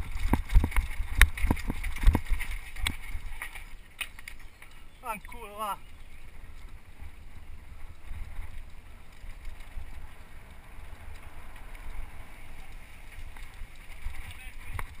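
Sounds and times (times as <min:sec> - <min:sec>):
bike rattling over rough ground: 0:00.0 - 0:15.0
wind buffeting microphone: 0:00.0 - 0:15.0.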